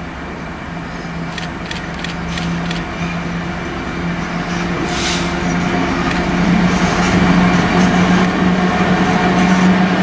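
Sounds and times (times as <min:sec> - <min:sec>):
diesel locomotive engine droning: 0:00.0 - 0:10.0
sharp clicks: 0:01.3 - 0:02.9
brief hiss: 0:04.9 - 0:05.4.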